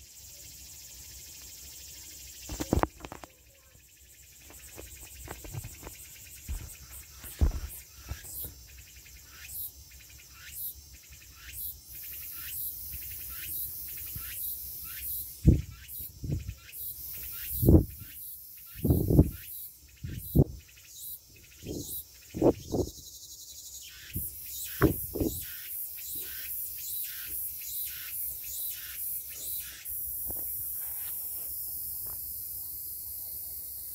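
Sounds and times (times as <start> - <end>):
insects chirping: 0.0 - 33.9
steady high insect hiss: 0.0 - 33.9
low dull thumps: 24.8 - 25.4.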